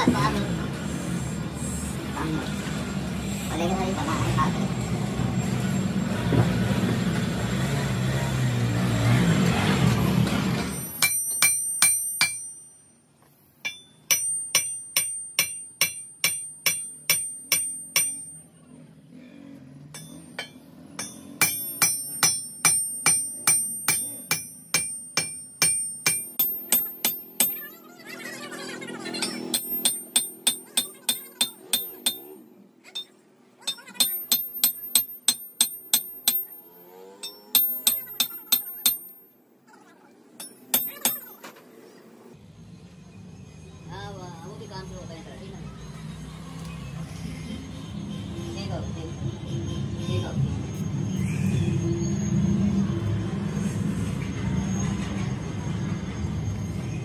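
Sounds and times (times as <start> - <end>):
hammer blows ringing on steel: 10.7 - 12.9, 13.6 - 18.5, 19.9 - 27.8, 29.2 - 39.3, 40.4 - 41.5.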